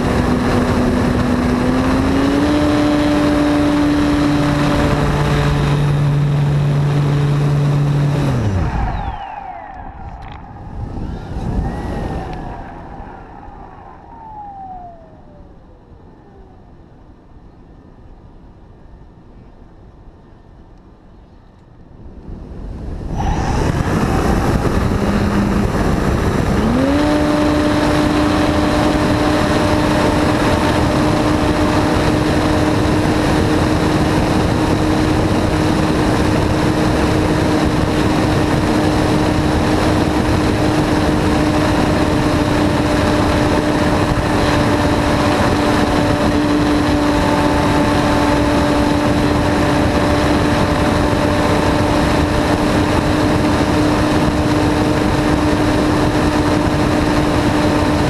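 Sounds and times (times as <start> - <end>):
wind rush on microphone: 0.0 - 58.0
model plane motor and propeller: 23.6 - 58.0.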